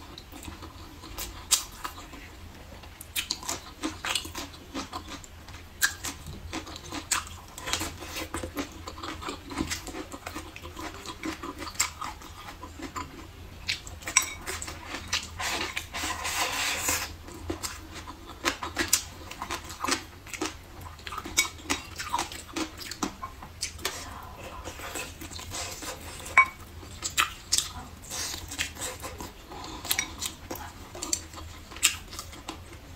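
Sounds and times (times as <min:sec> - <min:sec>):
wet chewing and lip smacking: 0:02.9 - 0:15.4, 0:17.4 - 0:24.1, 0:26.8 - 0:32.8.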